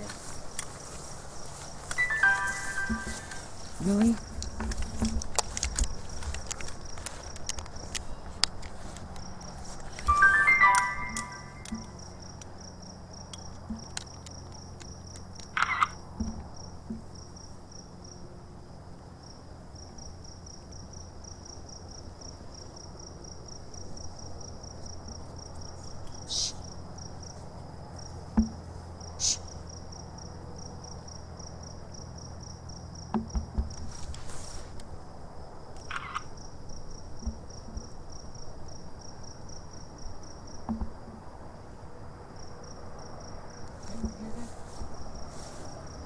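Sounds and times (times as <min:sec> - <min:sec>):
insects trilling: 0:00.0 - 0:46.0.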